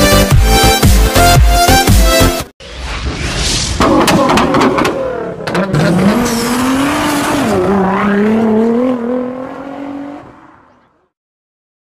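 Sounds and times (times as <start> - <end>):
car engine revving high: 4.3 - 10.4.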